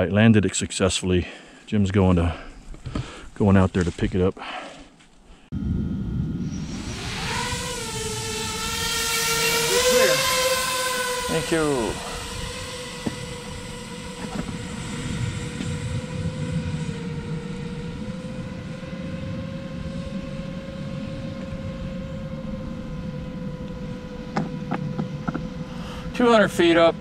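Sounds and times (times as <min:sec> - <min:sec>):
drone motors whining: 0:05.5 - 0:27.0.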